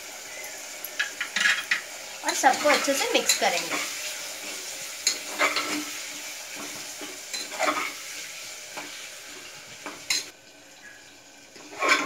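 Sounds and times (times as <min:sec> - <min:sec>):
food sizzling in hot oil: 0:00.0 - 0:12.0
spoon scraping a pot: 0:00.8 - 0:06.0, 0:06.6 - 0:08.0, 0:11.6 - 0:12.0.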